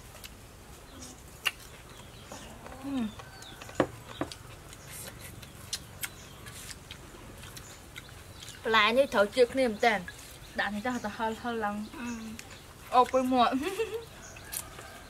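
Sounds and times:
faint bird chirps: 7.4 - 15.0.

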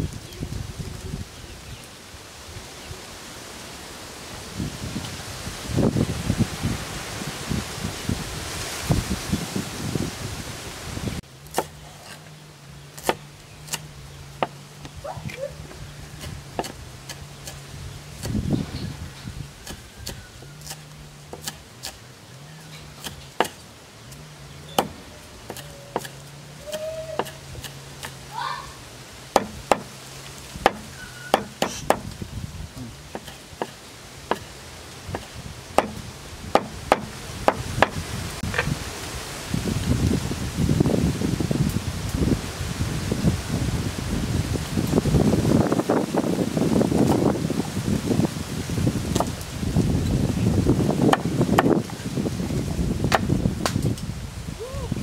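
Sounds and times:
cleaver chopping on wooden board: 11.5 - 12.2, 13.0 - 14.6, 16.2 - 17.6, 19.6 - 22.0, 23.0 - 23.6, 24.7 - 28.2, 29.3 - 29.9, 30.6 - 32.1, 33.1 - 34.5, 35.1 - 38.0, 51.1 - 51.8, 53.1 - 53.8.

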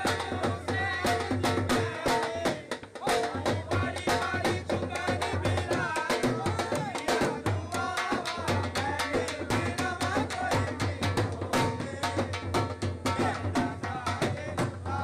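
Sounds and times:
drum in fast driving rhythm: 0.0 - 15.0.

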